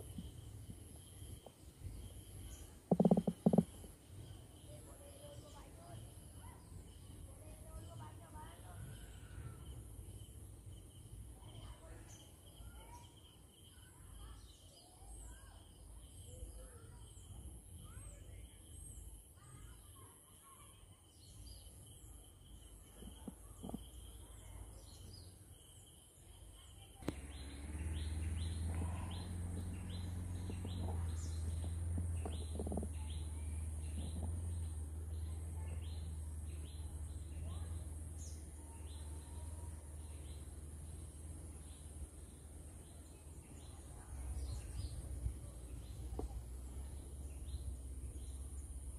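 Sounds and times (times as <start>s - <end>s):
birds chirping: 0.0s - 19.9s, 20.7s - 48.9s
steady low rumble: 27.0s - 38.5s.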